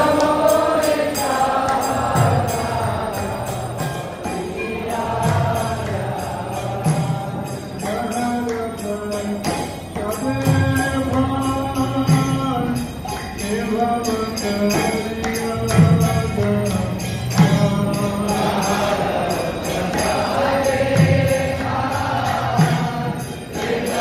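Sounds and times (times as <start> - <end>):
group chanting and singing: 0.0 - 24.0
hand cymbals beating: 0.0 - 24.0.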